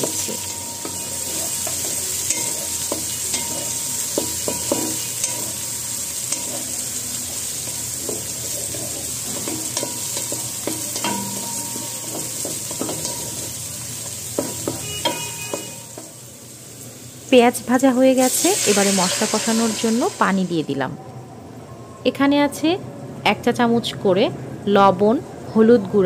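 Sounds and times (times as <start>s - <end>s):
onions sizzling in oil: 0.0s - 21.0s
spatula scraping a pan: 7.6s - 11.3s.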